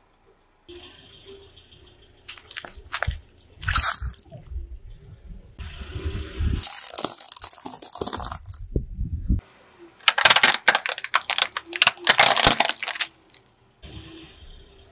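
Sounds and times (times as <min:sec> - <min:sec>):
tyre crushing plastic objects: 0:02.3 - 0:04.2, 0:06.6 - 0:08.6, 0:10.0 - 0:13.4.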